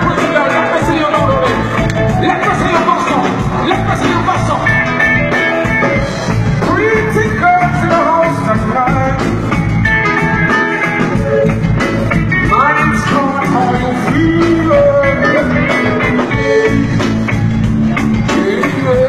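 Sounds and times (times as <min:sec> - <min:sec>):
person singing: 0:00.0 - 0:05.0, 0:06.6 - 0:09.6, 0:12.3 - 0:17.1, 0:17.9 - 0:19.0
live band music: 0:00.0 - 0:19.0.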